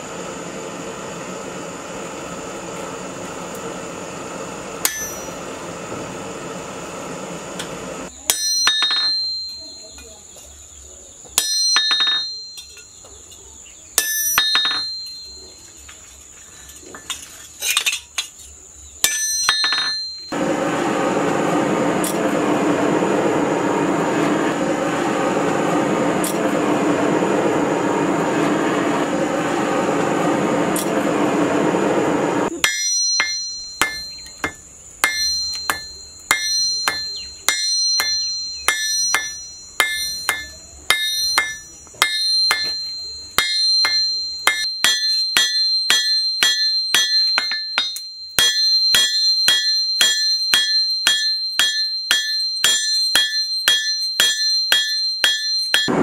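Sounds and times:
hammer ringing on an anvil: 0:04.8 - 0:05.4, 0:08.2 - 0:10.2, 0:11.4 - 0:13.0, 0:14.0 - 0:15.6, 0:19.0 - 0:20.4, 0:32.5 - 0:56.0
hammer striking a chisel: 0:04.8 - 0:05.4, 0:08.2 - 0:10.1, 0:11.4 - 0:12.9, 0:14.0 - 0:15.5, 0:19.0 - 0:20.4, 0:32.6 - 0:56.0
forge fire rushing: 0:20.3 - 0:32.6.

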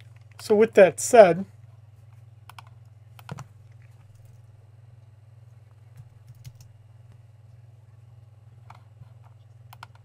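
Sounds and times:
low electrical hum: 0:00.0 - 0:10.0
computer keyboard keystrokes: 0:02.5 - 0:03.4, 0:06.0 - 0:06.7, 0:09.7 - 0:10.0.

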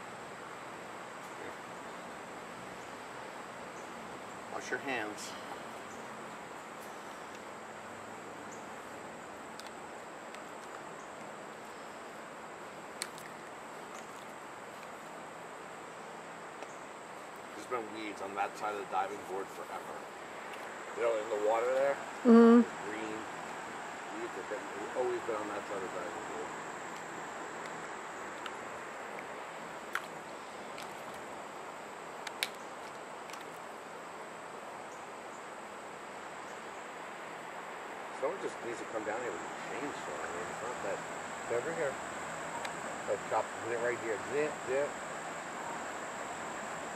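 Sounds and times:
steady hiss: 0:00.0 - 0:46.9
faint sharp clicks: 0:09.6 - 0:11.3, 0:13.0 - 0:14.9, 0:29.9 - 0:31.2, 0:32.2 - 0:33.6.

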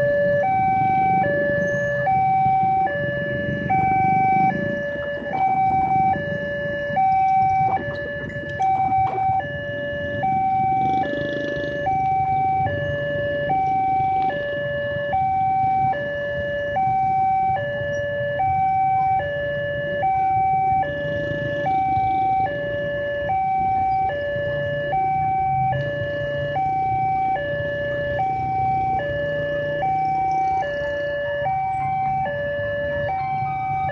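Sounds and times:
road traffic engines: 0:00.0 - 0:33.9
two-tone level crossing alarm: 0:00.0 - 0:33.9.

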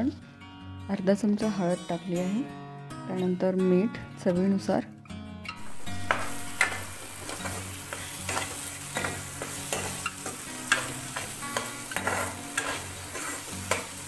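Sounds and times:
masala sizzling in oil: 0:05.6 - 0:14.0
metal spatula scraping a pan: 0:06.0 - 0:14.0.

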